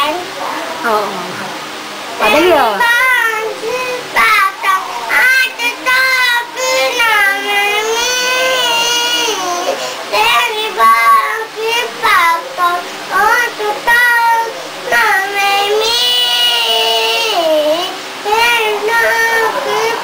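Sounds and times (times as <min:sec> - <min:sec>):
girl singing: 0:02.2 - 0:20.0.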